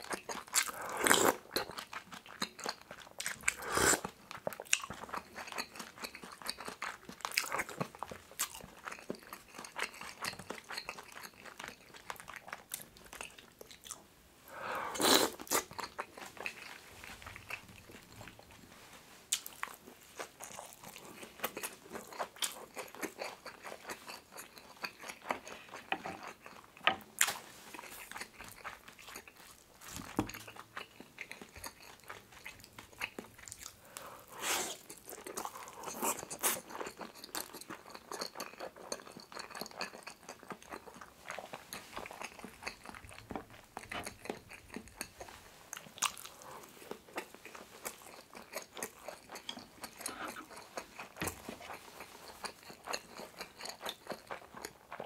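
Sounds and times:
chewing with wet mouth smacks: 0:00.0 - 0:14.0, 0:15.0 - 0:18.6, 0:19.3 - 0:55.0
slurping: 0:03.4 - 0:04.2.

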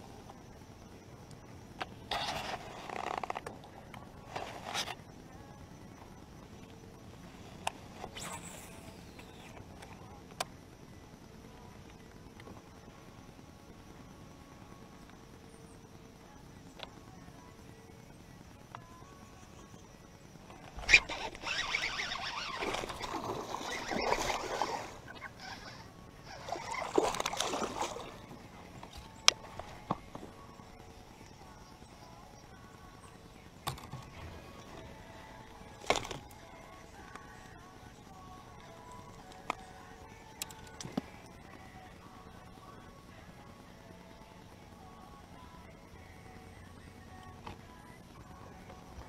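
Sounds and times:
fishing line swishing off spool: 0:07.9 - 0:09.3, 0:20.7 - 0:28.2
fishing reel click: 0:20.8 - 0:24.6
water splashing from hooked fish: 0:26.3 - 0:28.3.

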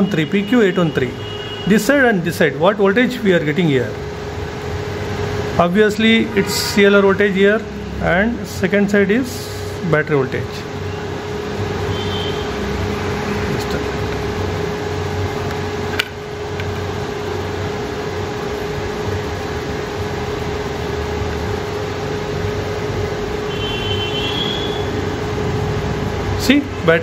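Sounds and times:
steady mechanical hum: 0:00.0 - 0:27.0.

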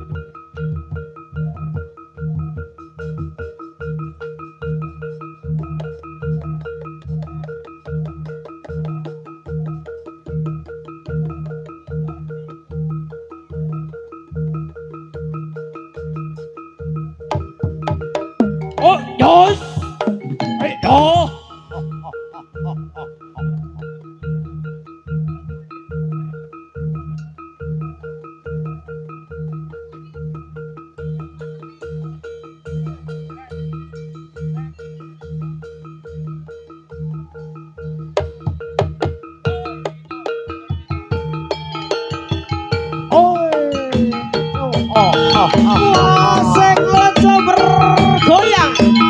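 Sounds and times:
struck metallophones pattern: 0:00.0 - 0:49.0
deep drum and gong beats: 0:04.6 - 0:16.4, 0:17.3 - 0:25.6, 0:38.1 - 0:40.0, 0:40.6 - 0:49.0.

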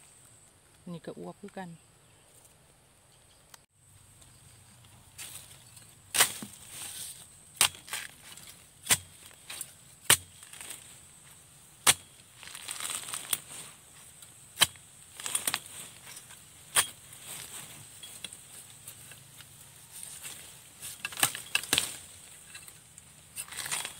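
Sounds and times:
leaves and stalks rustling: 0:00.0 - 0:23.9
machete chopping bamboo: 0:06.1 - 0:07.0, 0:07.6 - 0:11.0, 0:11.8 - 0:13.5, 0:14.5 - 0:17.5, 0:19.9 - 0:22.7.

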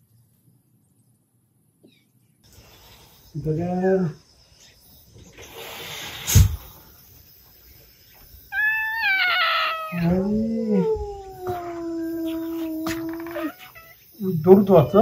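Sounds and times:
cat yowling and growling: 0:08.5 - 0:14.0.

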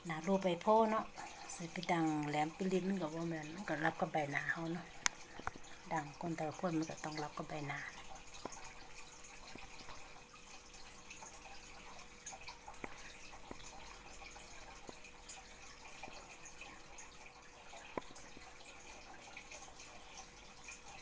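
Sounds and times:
faint steady hum: 0:00.0 - 0:21.0.

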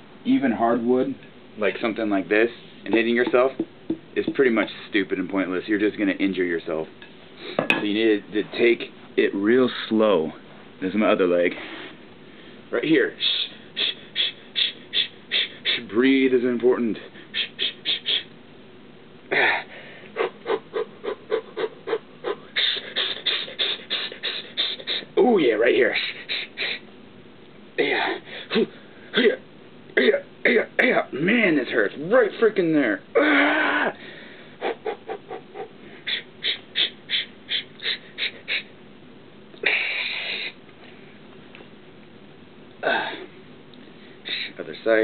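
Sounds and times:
man breathing in sharp puffs: 0:19.6 - 0:25.1, 0:34.0 - 0:34.6, 0:35.8 - 0:38.7, 0:39.6 - 0:41.0, 0:43.9 - 0:44.6.

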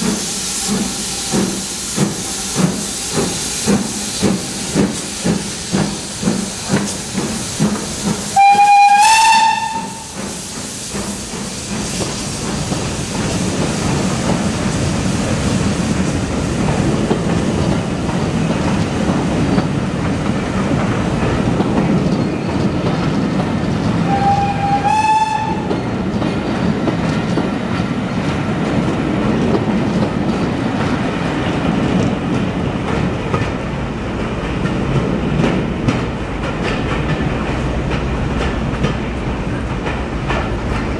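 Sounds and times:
train wheels rumbling over rail joints: 0:00.0 - 0:40.9
train whistle: 0:08.4 - 0:10.2, 0:24.0 - 0:25.8.

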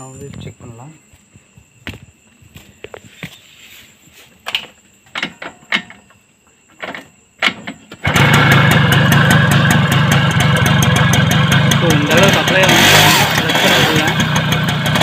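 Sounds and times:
two-stroke engine running: 0:08.0 - 0:15.0.

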